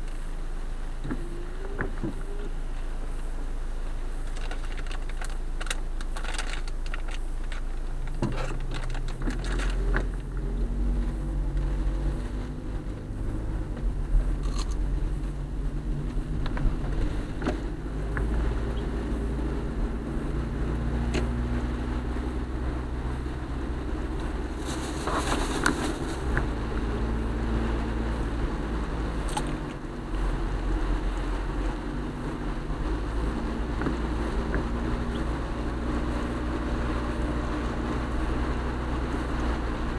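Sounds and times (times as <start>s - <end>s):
car engine and road rumble: 0.0s - 39.9s.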